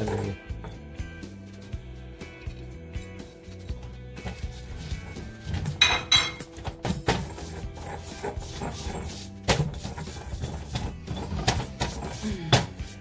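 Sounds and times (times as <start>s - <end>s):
background music: 0.0s - 13.0s
stone pestle grinding in mortar: 4.5s - 13.0s.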